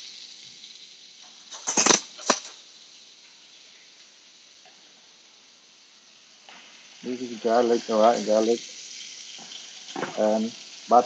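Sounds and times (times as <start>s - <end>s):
steak sizzling in a pan: 0.0s - 11.0s.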